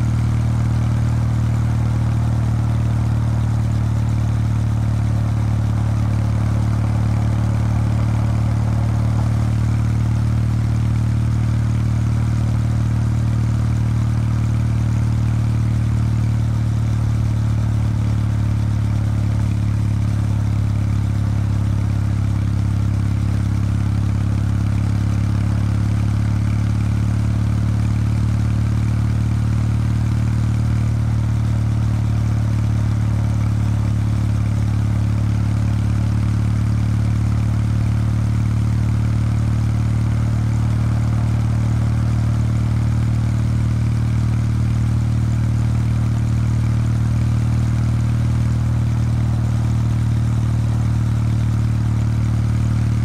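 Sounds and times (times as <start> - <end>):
motorcycle engine cruising: 0.8 - 13.1.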